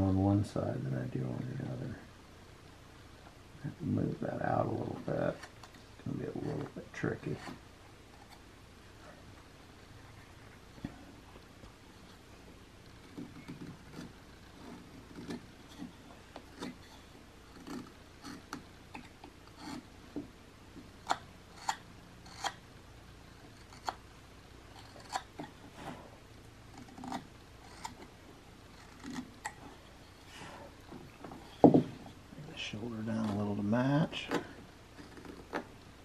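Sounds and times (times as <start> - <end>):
knife whittling wood: 12.9 - 19.9, 21.0 - 22.6, 24.7 - 26.1, 26.7 - 28.1.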